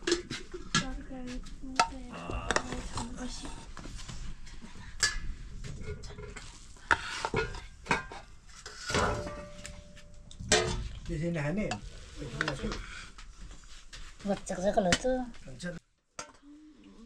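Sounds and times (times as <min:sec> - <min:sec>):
metal utensil scraping a pot: 0:04.8 - 0:13.1.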